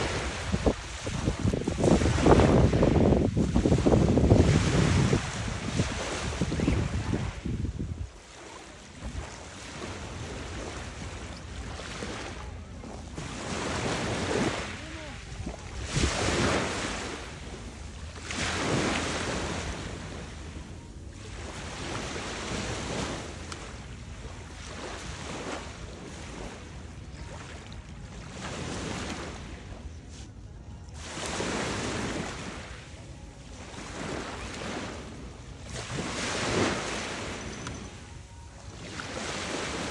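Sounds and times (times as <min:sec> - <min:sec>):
wind on microphone: 0:00.0 - 0:20.7
small waves breaking on sand: 0:00.0 - 0:39.9.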